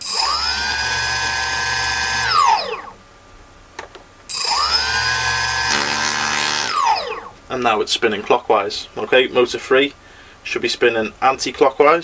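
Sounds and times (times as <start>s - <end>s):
brushless motor high-pitched whine: 0.0s - 3.0s, 4.3s - 7.3s.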